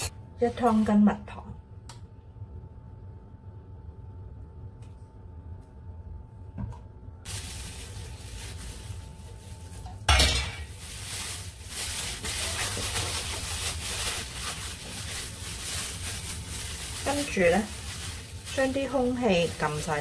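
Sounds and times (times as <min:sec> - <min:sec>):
plastic bag crinkling: 0:07.2 - 0:20.0.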